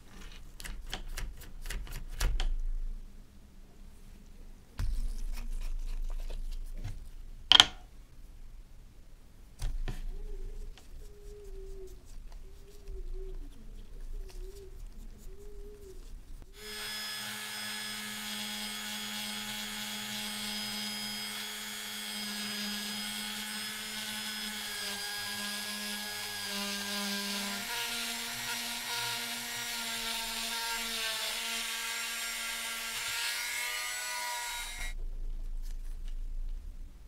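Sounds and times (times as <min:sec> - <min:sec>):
rotary tool whining: 0:16.6 - 0:35.0.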